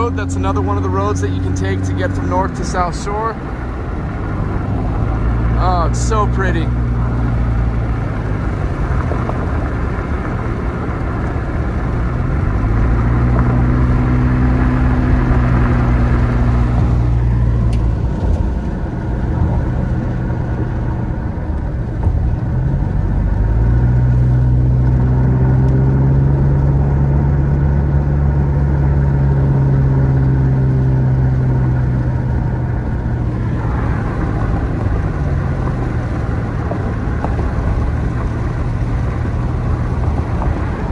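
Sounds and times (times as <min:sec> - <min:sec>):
car engine: 0:00.0 - 0:40.9
road noise inside car: 0:00.0 - 0:40.9.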